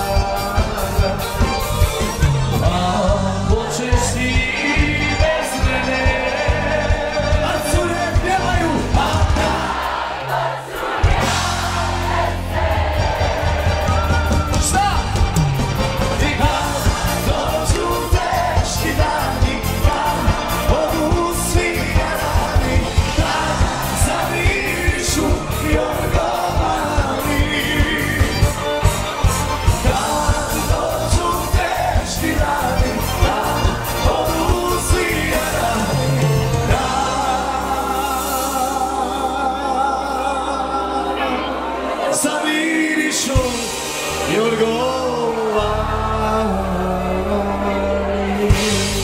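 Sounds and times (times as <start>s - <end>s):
steady drum beat: 0.0s - 38.6s
party band music with singing: 0.0s - 49.0s.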